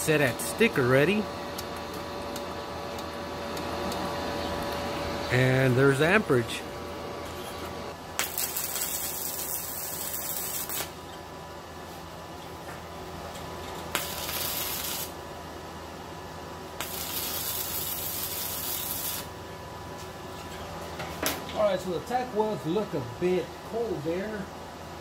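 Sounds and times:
welding arc crackling hiss: 0:07.3 - 0:11.2, 0:13.7 - 0:15.3, 0:16.8 - 0:19.4
welding arc strike crack: 0:08.2 - 0:11.0, 0:13.9 - 0:15.2, 0:16.8 - 0:19.3.

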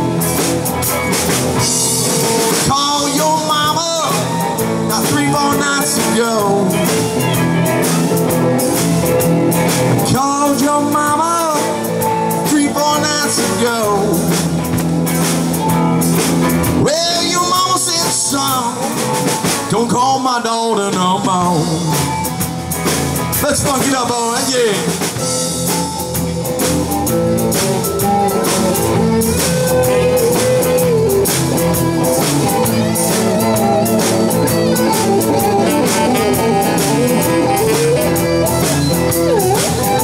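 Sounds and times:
blues-rock band playing: 0:00.0 - 0:40.0
wailing harmonica: 0:25.7 - 0:40.0.

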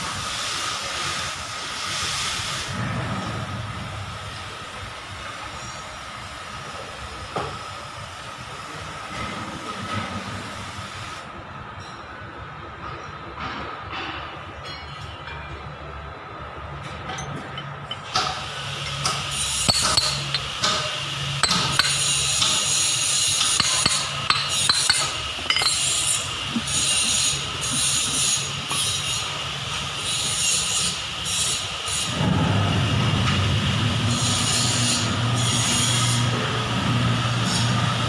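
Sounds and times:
tool scraping and brushing: 0:19.0 - 0:29.2
metal clinks and taps: 0:19.7 - 0:20.8, 0:21.4 - 0:22.1, 0:23.4 - 0:26.1.

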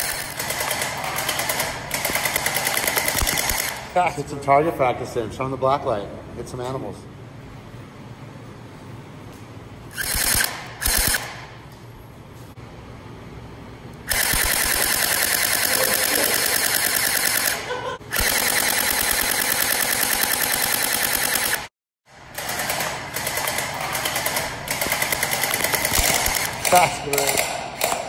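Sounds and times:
gel blaster firing bursts: 0:00.0 - 0:03.9, 0:09.9 - 0:11.5, 0:14.1 - 0:21.7, 0:22.4 - 0:28.0.

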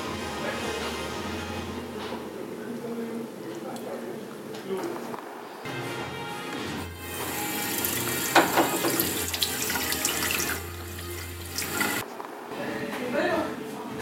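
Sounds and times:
faucet water running into sink: 0:07.0 - 0:12.0.

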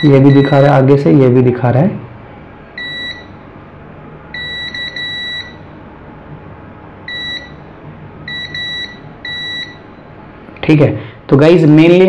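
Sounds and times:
multimeter continuity beep: 0:00.0 - 0:00.8, 0:02.8 - 0:03.4, 0:04.3 - 0:05.7, 0:07.0 - 0:10.0.

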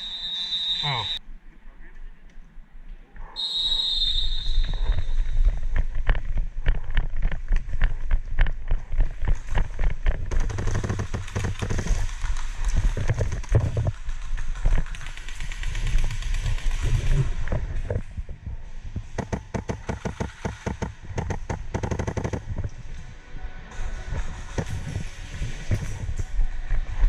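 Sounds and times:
shrill high tone: 0:00.0 - 0:01.2.

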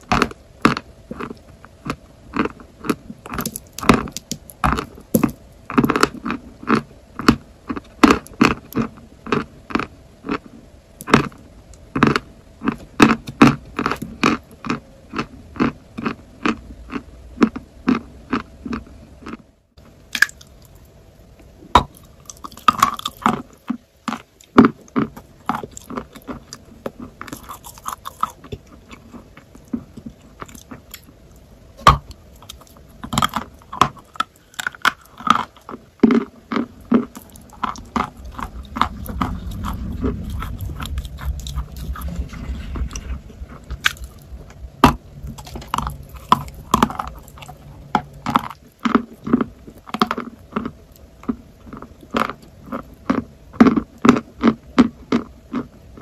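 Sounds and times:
crunching and chewing chalk: 0:00.0 - 0:56.0.

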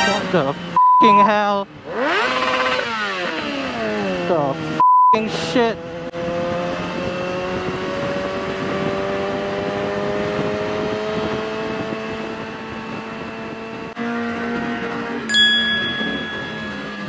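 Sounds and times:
steady engine note: 0:15.3 - 0:17.0.

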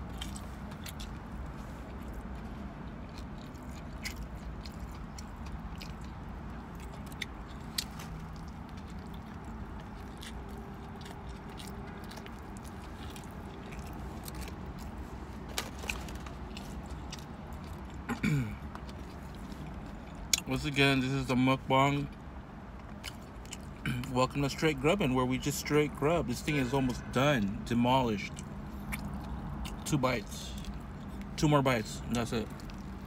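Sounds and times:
person chewing food: 0:00.0 - 0:20.4, 0:22.1 - 0:23.8, 0:28.2 - 0:29.9, 0:30.5 - 0:31.3, 0:32.1 - 0:33.0
low rumble inside car: 0:00.0 - 0:33.0
wet mouth clicks and smacks: 0:28.3 - 0:29.8.

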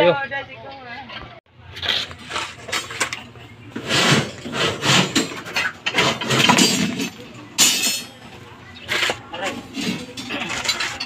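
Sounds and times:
shovel scraping gravelly soil: 0:01.7 - 0:03.1, 0:03.7 - 0:07.0.

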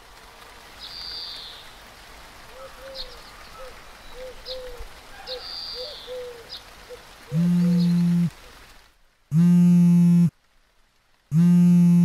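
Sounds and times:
bird low arching calls: 0:05.3 - 0:08.3.

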